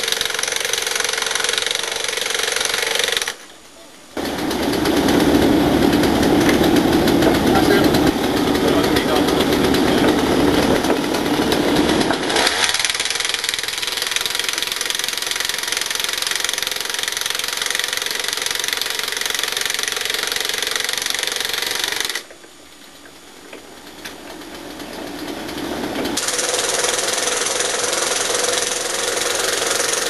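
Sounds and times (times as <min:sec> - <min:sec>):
petrol engine running hard: 0:04.2 - 0:12.5
engine idling: 0:04.2 - 0:22.3, 0:23.0 - 0:30.0.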